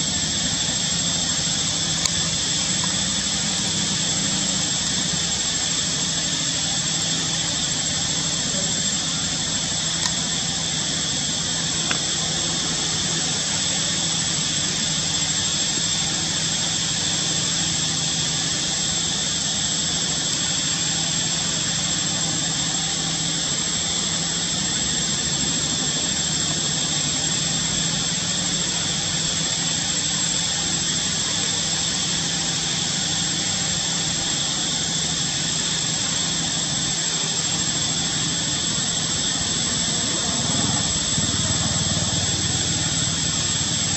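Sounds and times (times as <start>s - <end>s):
constant high whine: 0.0s - 43.9s
steady noise drone: 0.0s - 43.9s.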